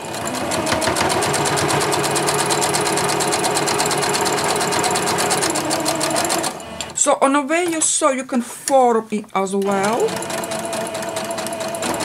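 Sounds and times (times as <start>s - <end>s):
sewing machine motor hum: 0.0s - 7.0s, 9.6s - 12.0s.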